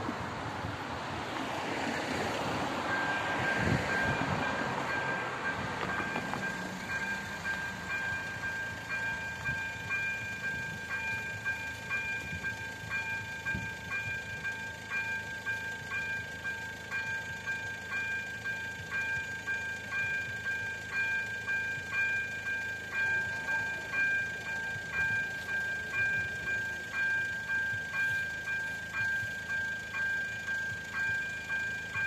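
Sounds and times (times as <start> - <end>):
car driving over crossing: 0.0 - 14.1
level crossing warning bell: 1.8 - 32.0.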